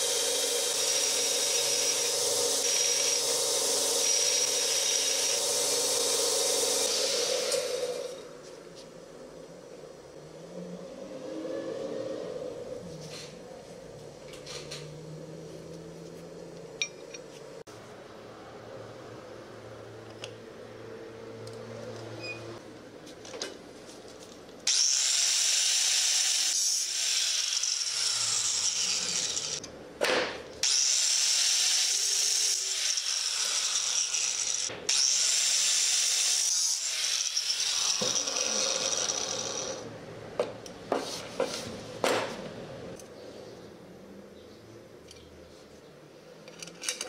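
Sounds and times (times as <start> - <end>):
angle grinder cutting steel: 0.0 - 8.3, 24.7 - 29.7, 30.6 - 39.9.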